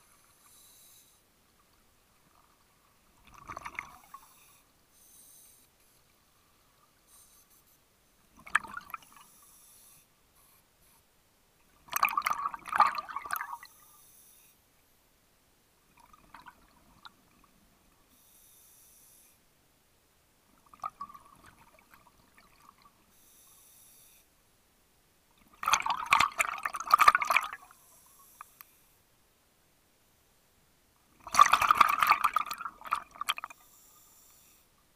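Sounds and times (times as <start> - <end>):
exhaled bubbles gurgling: 3.2 - 4.2, 8.4 - 9.1, 11.9 - 13.7, 25.5 - 27.7, 31.2 - 33.5.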